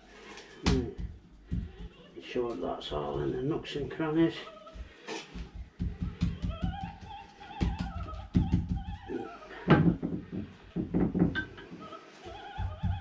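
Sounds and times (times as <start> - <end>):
woman singing opera on radio: 4.2 - 10.0, 11.4 - 13.0.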